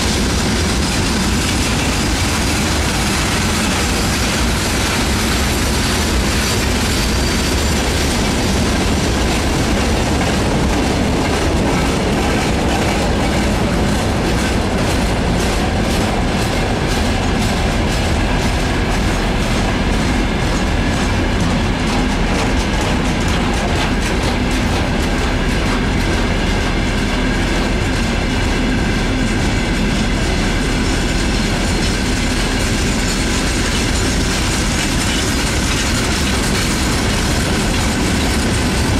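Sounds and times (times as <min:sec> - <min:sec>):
steel wheels rumbling on rails: 0:00.0 - 0:38.9
wheels clacking over rail joints: 0:00.0 - 0:38.9.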